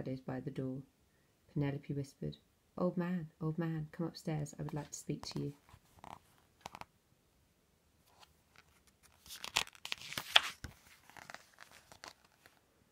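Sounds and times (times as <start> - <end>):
paper page rustling: 5.4 - 6.9, 8.0 - 12.6.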